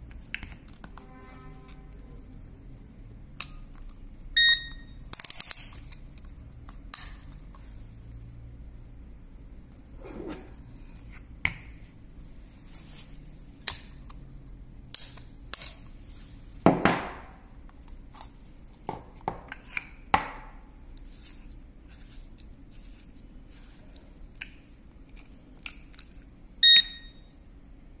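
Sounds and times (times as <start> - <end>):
short electronic beep: 4.4 - 5.0, 26.6 - 27.3.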